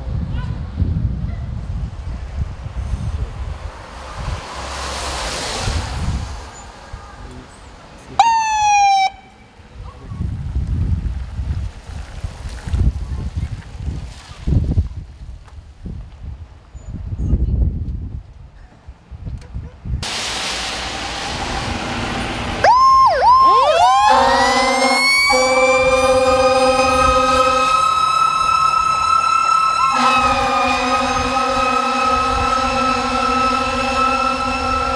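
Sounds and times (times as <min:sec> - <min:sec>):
car swishing past on wet road: 0:02.7 - 0:08.2, 0:20.0 - 0:25.8
police siren blast: 0:08.2 - 0:09.4, 0:22.6 - 0:34.9.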